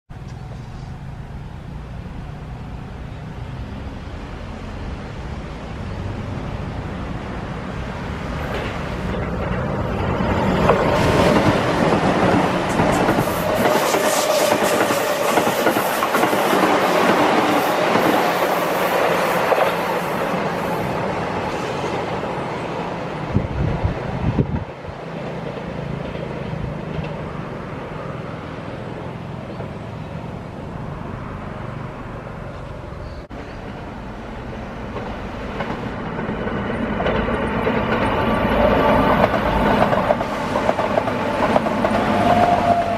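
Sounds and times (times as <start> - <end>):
electric train passing: 0.2 - 42.9
wheels clattering over rail joints: 8.4 - 19.8, 33.5 - 42.9.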